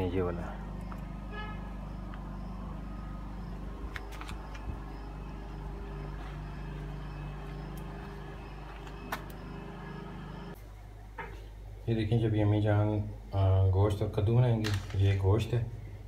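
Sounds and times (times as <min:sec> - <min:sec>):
low motor hum: 0:00.0 - 0:10.6.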